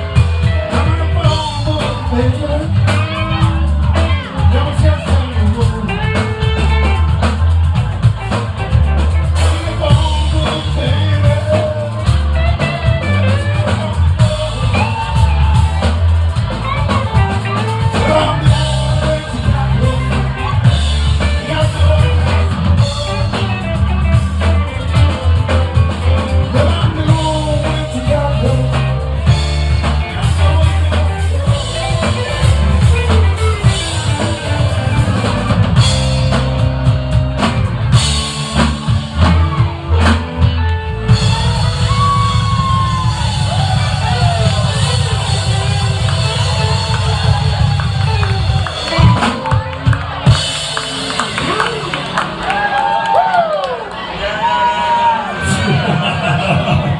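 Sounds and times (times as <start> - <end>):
person singing: 0.0 - 7.2, 9.0 - 35.4
bass guitar: 0.0 - 56.9
drum kit: 0.0 - 56.9
electric guitars: 0.0 - 56.9.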